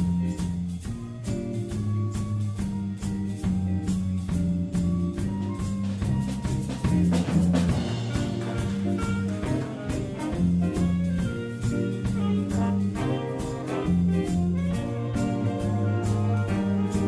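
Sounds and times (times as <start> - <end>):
bass: 0.0 - 17.0
drum kit beat: 0.0 - 17.0
horn section: 0.0 - 17.0
keyboard: 0.0 - 17.0.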